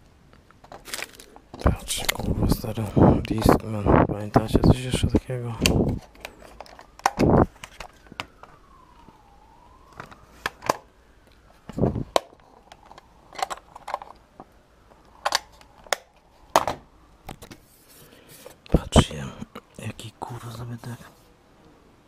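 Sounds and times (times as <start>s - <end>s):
plastic electronics being handled: 0.3s - 19.0s
faint whine changing pitch: 1.6s - 15.7s.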